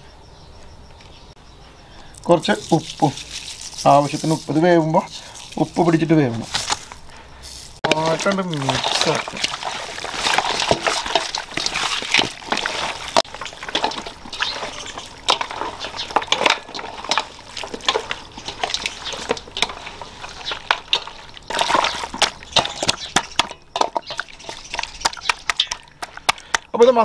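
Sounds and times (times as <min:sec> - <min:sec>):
hands kneading wet meat: 0:07.8 - 0:27.0.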